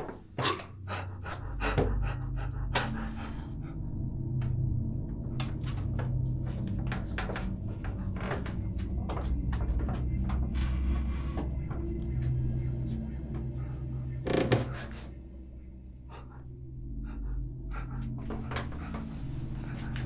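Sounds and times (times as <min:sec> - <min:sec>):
low dark drone: 0:00.2 - 0:20.0
heavy panting: 0:00.4 - 0:04.1, 0:16.0 - 0:20.0.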